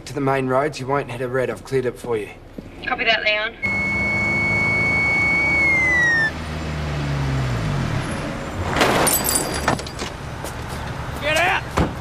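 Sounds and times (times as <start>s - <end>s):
car speeding past: 3.6s - 8.8s.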